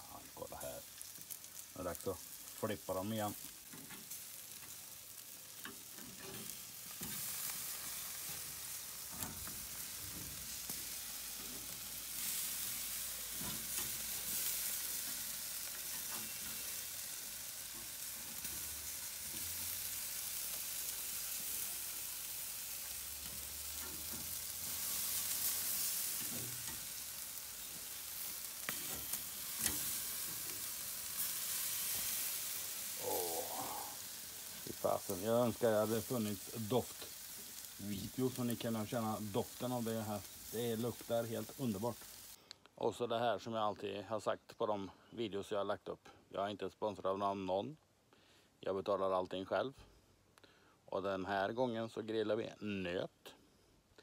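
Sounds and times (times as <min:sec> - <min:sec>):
steaks sizzling on grill: 0:00.0 - 0:42.4.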